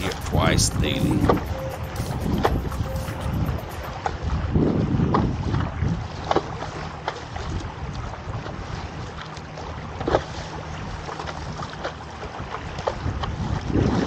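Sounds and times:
wind buffeting microphone: 0.0 - 6.3, 12.3 - 14.0
water lapping and splashing: 2.3 - 14.0.

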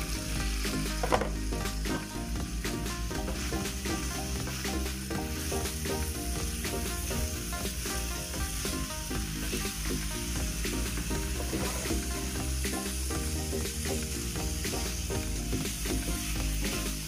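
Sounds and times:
background music: 0.0 - 17.0
food sizzling in frying pan: 0.0 - 17.0
spatula scraping pan: 11.2 - 12.1.

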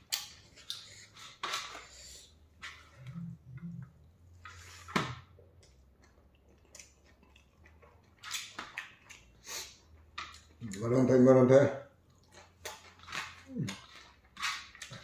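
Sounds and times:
wet chewing clicks: 5.5 - 11.0.

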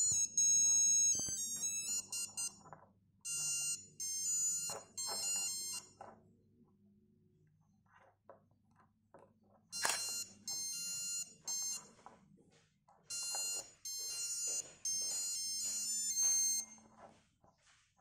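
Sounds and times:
watch beeper playing electronic tune: 0.0 - 2.6, 9.8 - 11.8, 13.1 - 16.8.

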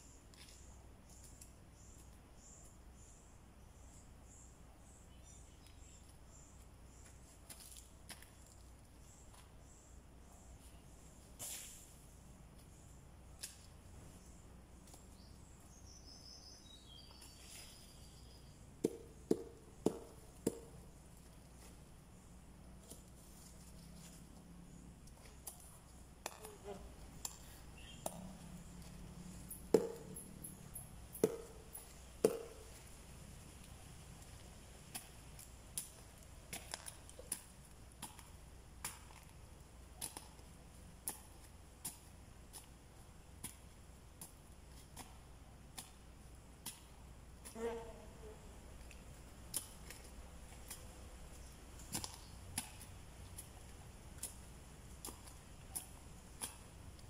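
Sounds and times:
faint high hiss: 10.5 - 14.6
machete chopping into soil: 11.4 - 11.9, 25.4 - 26.6, 29.6 - 30.3, 31.1 - 32.8, 51.8 - 53.5
faint bird chirps: 26.4 - 28.4.

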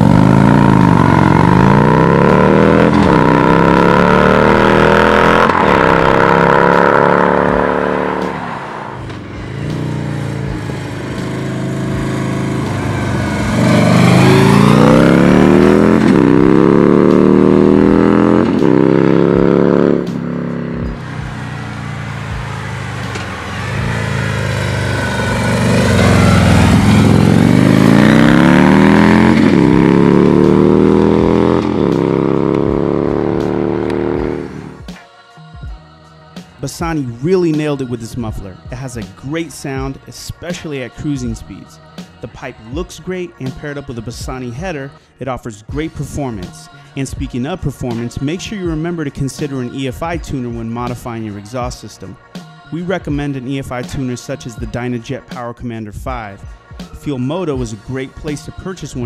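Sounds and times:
motorcycle accelerating through gears: 0.0 - 34.9.

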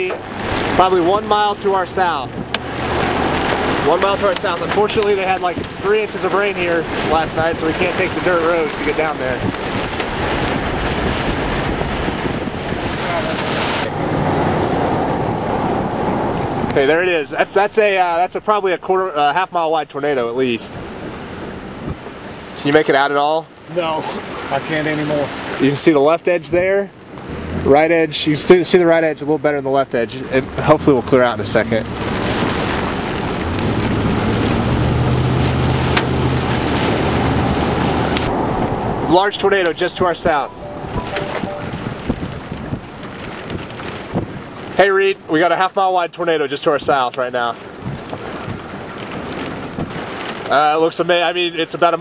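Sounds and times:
strong wind rushing over microphone: 0.0 - 19.0, 20.5 - 22.6, 30.4 - 45.4, 46.7 - 51.5
low engine hum: 1.8 - 5.8, 9.5 - 17.3.

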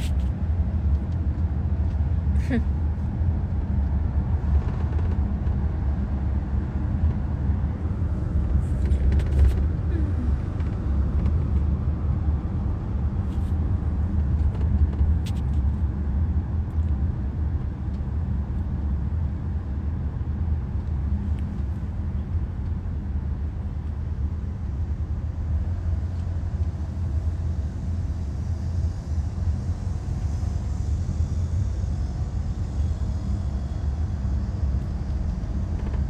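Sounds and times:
vehicle rumble from inside cabin: 0.0 - 36.0.

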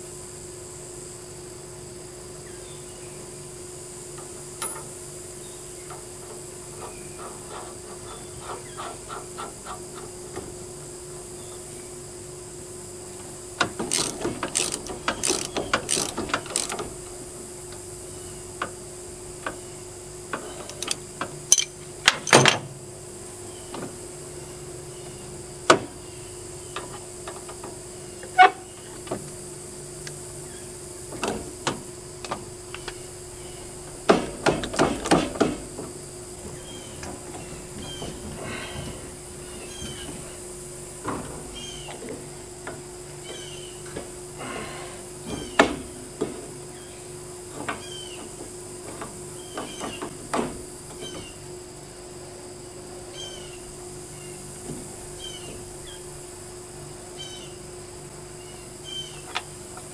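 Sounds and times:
socket ratchet clicking: 13.8 - 17.0, 20.7 - 22.4.

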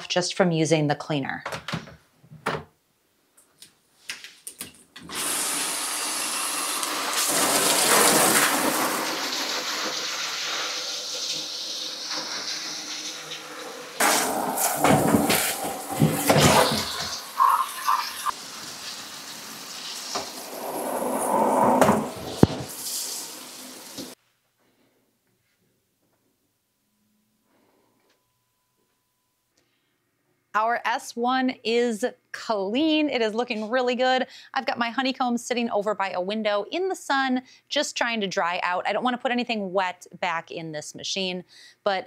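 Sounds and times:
shower head spraying water on metal: 5.1 - 24.2.

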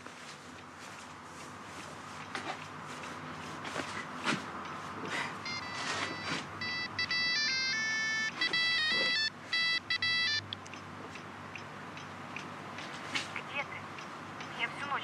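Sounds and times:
phone ringtone melody: 5.4 - 10.5.

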